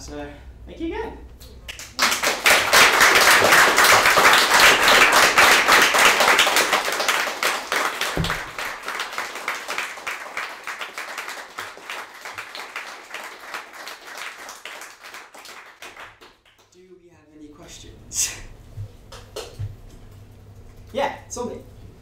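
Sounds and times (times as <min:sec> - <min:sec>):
audience applauding: 0:01.7 - 0:16.7
low thud: 0:08.2 - 0:08.6.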